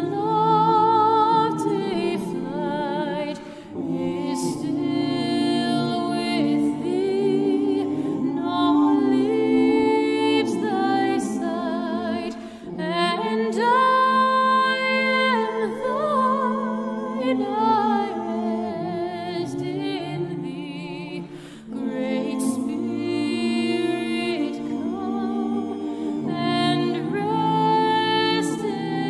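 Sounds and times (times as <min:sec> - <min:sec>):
choir singing a hymn: 0:00.0 - 0:29.0.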